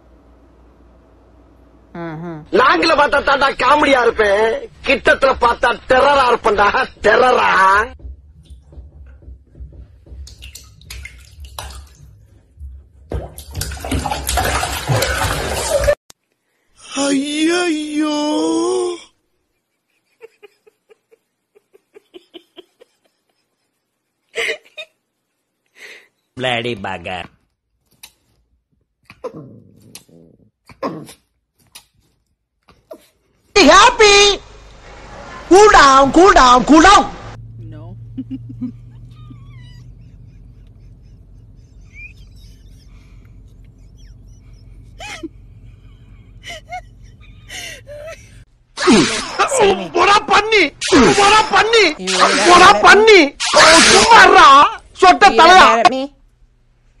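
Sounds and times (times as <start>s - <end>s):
soft giggling laughter: 19.5s - 25.1s, 38.2s - 48.5s
dog whining: 38.8s - 45.3s.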